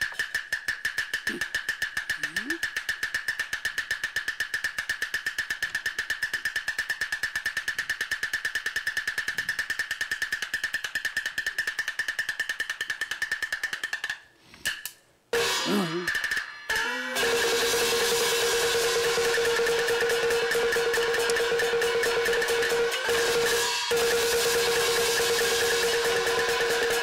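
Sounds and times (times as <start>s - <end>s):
high-pitched percussion roll: 15.4s - 27.0s
lone percussion strikes: 15.4s - 27.0s.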